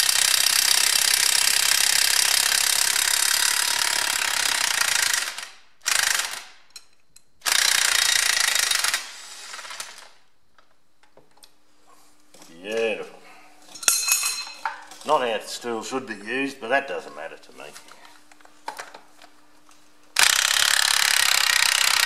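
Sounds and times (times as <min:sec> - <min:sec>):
impact wrench hammering: 0:20.2 - 0:22.0.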